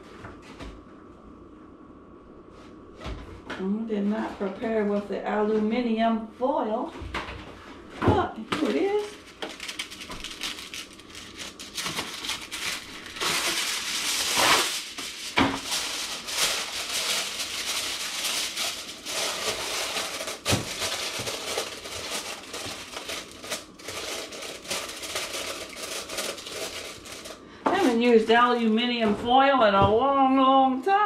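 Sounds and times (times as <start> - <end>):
foil tearing: 8.6 - 28.0
aluminum foil rustling: 8.6 - 28.8.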